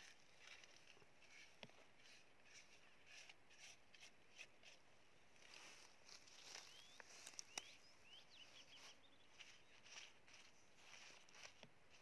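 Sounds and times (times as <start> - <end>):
bird chirps: 6.4 - 9.9.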